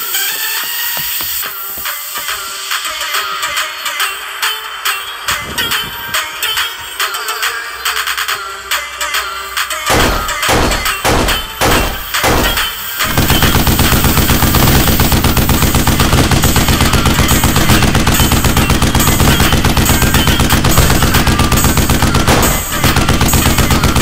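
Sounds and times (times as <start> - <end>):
machine-gun fire: 9.9 - 24.0.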